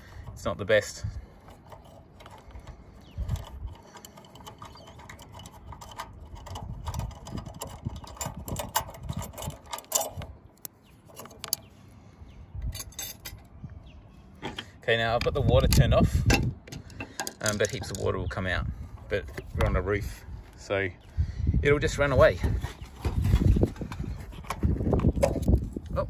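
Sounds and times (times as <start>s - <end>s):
metal parts clicking and scraping: 0.0s - 11.9s, 12.6s - 13.6s, 14.3s - 18.2s, 22.4s - 26.0s.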